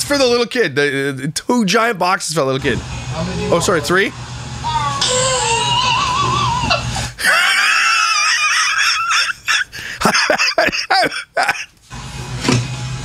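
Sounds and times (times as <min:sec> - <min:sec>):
man laughing hard: 0:06.2 - 0:11.8.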